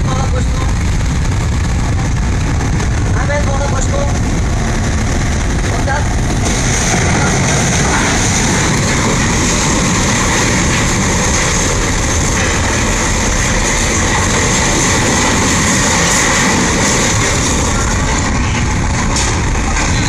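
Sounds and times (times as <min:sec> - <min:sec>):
water churning: 0:00.0 - 0:20.0
wind buffeting microphone: 0:00.0 - 0:20.0.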